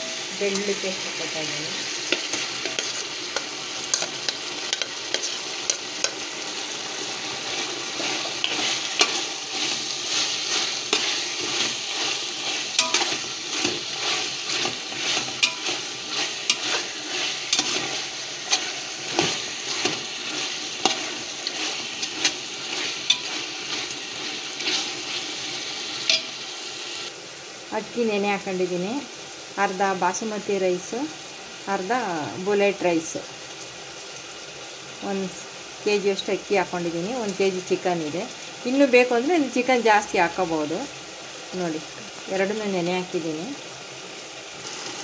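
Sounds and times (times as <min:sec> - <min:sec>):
chicken sizzling in oil: 0:00.0 - 0:45.0
metal spoon scraping pot: 0:02.1 - 0:06.2, 0:07.5 - 0:25.3.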